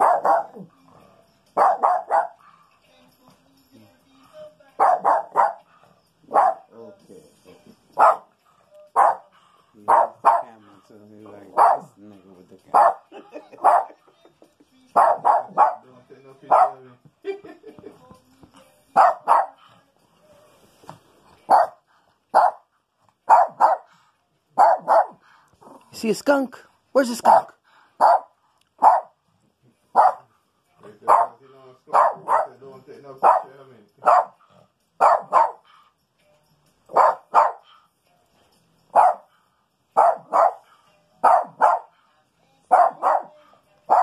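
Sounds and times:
dog barking: 0:00.0 - 0:00.7, 0:01.6 - 0:02.4, 0:04.8 - 0:05.7, 0:06.3 - 0:06.7, 0:08.0 - 0:09.3, 0:09.9 - 0:10.6, 0:11.4 - 0:12.0, 0:12.7 - 0:14.1, 0:14.9 - 0:15.9, 0:16.5 - 0:16.8, 0:19.0 - 0:19.6, 0:21.5 - 0:22.7, 0:23.3 - 0:23.9, 0:24.6 - 0:25.2, 0:27.2 - 0:29.2, 0:29.9 - 0:30.3, 0:31.0 - 0:32.6, 0:33.2 - 0:34.4, 0:35.0 - 0:35.6, 0:36.9 - 0:37.6, 0:38.9 - 0:39.3, 0:40.0 - 0:41.9, 0:42.7 - 0:44.0.

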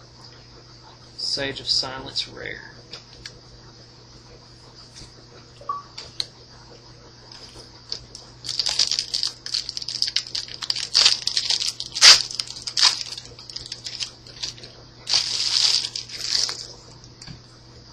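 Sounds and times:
foil pack crinkling and tearing: 0:08.4 - 0:16.8.

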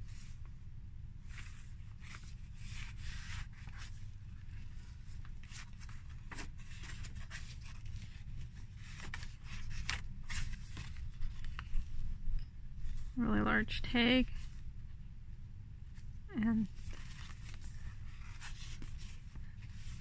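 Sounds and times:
low steady hum: 0:00.0 - 0:20.0
paper rustling and sliding: 0:01.3 - 0:12.0, 0:16.8 - 0:20.0.

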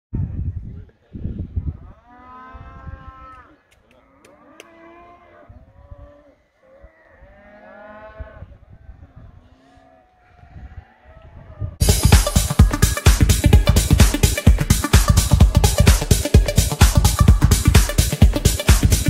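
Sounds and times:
wind rumble on microphone: 0:00.1 - 0:03.4, 0:08.0 - 0:09.5, 0:10.4 - 0:11.8
livestock calling: 0:01.8 - 0:11.6.

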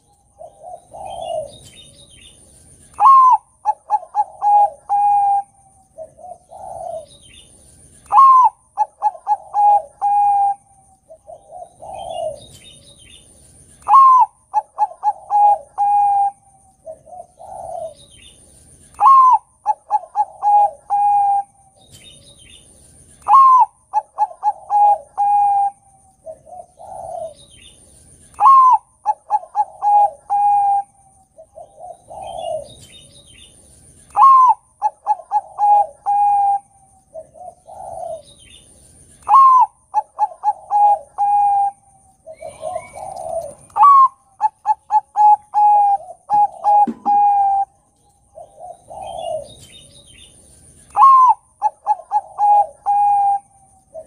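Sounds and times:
dove cooing: 0:00.0 - 0:22.6, 0:23.2 - 0:54.0.

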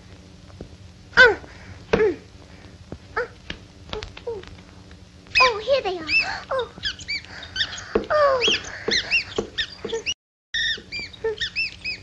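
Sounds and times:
cartoon mice squeaking: 0:05.3 - 0:12.0.

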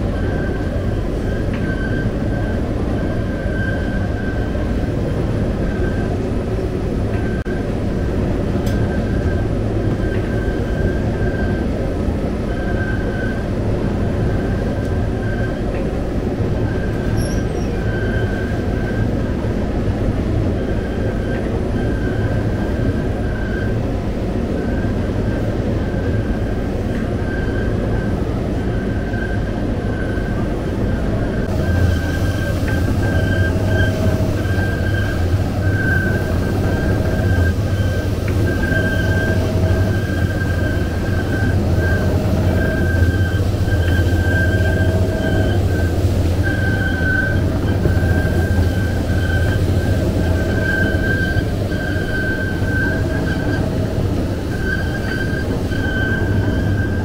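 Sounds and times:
machine squeak: 0:16.7 - 0:19.1, 0:28.7 - 0:57.0
dough machine humming: 0:31.4 - 0:57.0.

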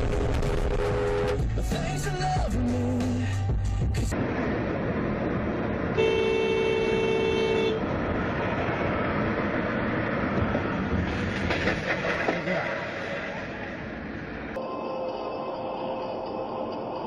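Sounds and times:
road noise inside car: 0:00.0 - 0:17.0
two-tone car horn: 0:00.6 - 0:01.4, 0:06.0 - 0:07.9.

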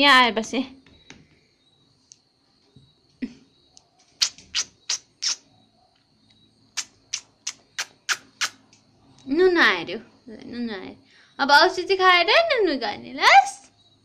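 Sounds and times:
short sharp clicks: 0:04.2 - 0:05.4, 0:06.8 - 0:08.8.

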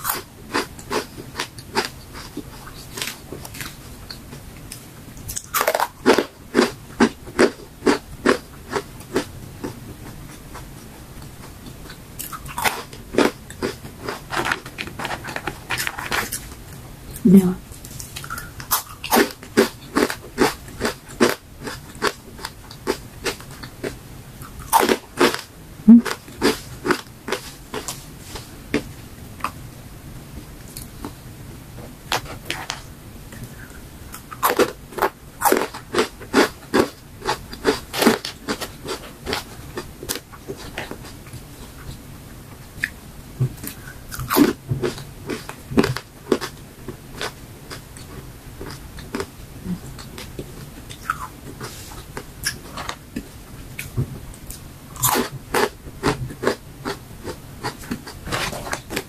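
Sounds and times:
crunching crisp chips: 0:35.4 - 0:40.2.

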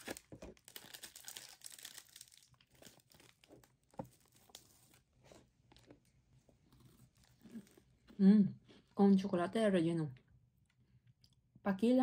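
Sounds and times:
plastic wrapper crinkling: 0:00.0 - 0:06.0.

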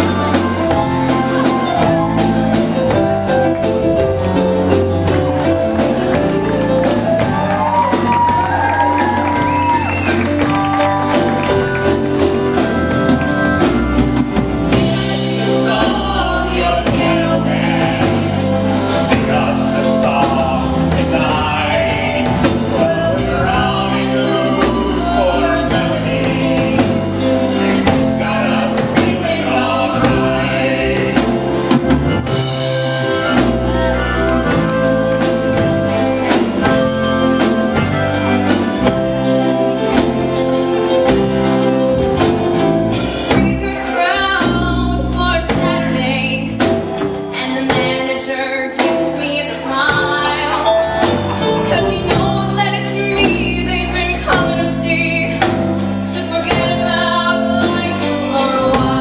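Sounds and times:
live band playing: 0:00.0 - 0:59.0
man and woman singing a duet: 0:14.8 - 0:31.7, 0:43.3 - 0:46.7, 0:47.3 - 0:59.0.

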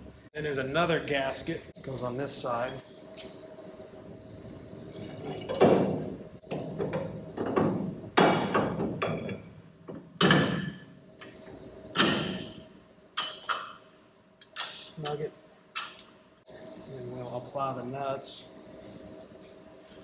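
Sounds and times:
metal knocks and clunks: 0:05.2 - 0:10.9.

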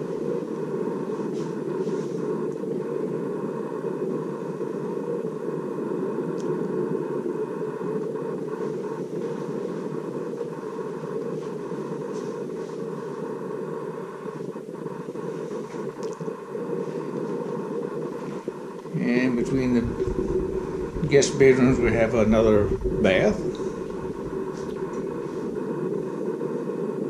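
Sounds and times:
low rushing noise: 0:15.5 - 0:27.0
faint light clicks: 0:16.0 - 0:16.3.

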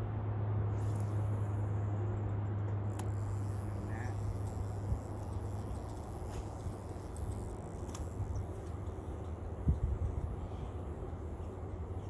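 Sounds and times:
fishing rod cast click: 0:02.9 - 0:09.4.

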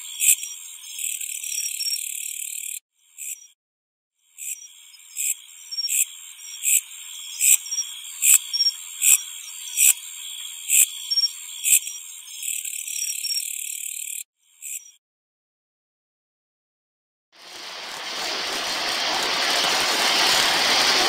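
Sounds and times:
insect buzzing trill with chirps: 0:00.0 - 0:03.6, 0:04.2 - 0:15.0.

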